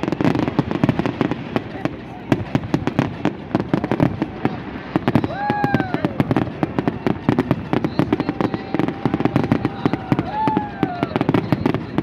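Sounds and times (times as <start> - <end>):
fireworks bangs and crackles: 0.0 - 12.0
firework whistle: 3.7 - 12.0.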